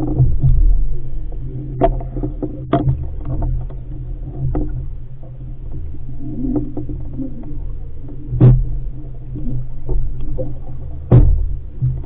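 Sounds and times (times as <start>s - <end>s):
steady low rumble: 0.0s - 12.0s
water rushing along a hull: 0.0s - 12.0s
sharp knocks and splashes: 1.8s - 3.8s, 8.3s - 8.9s, 9.8s - 12.0s.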